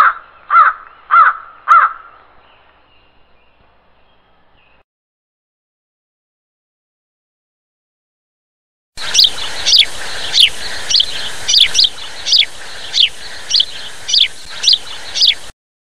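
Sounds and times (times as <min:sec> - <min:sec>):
swallow chirping: 0:09.0 - 0:15.5.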